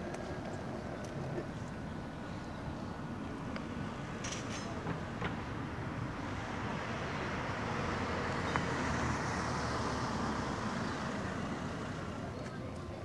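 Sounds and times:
cars passing on street: 0.0 - 13.0.

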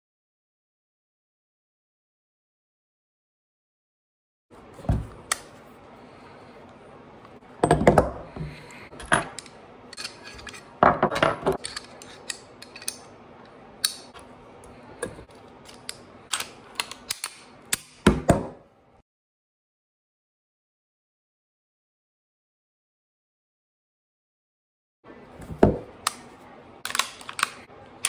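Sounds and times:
metal parts clattering on table: 9.0 - 13.1
metallic clicks of pistol parts: 11.6 - 13.1, 13.8 - 14.2, 15.6 - 17.9, 26.8 - 27.6.

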